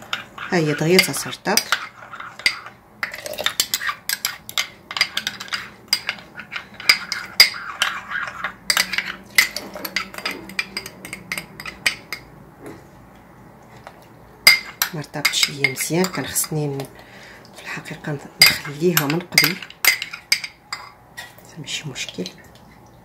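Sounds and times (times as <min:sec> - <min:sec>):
teaspoon clinking in ceramic ramekin: 0:00.9 - 0:12.3, 0:18.4 - 0:21.0.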